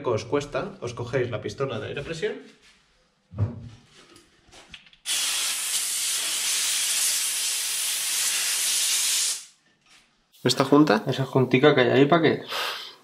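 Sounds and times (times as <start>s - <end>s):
compressed air blow gun hissing: 5.1s - 9.5s.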